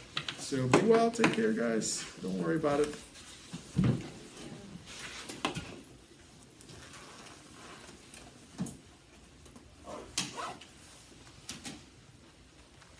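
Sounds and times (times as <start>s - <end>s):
knocks and rustles: 3.4s - 6.0s.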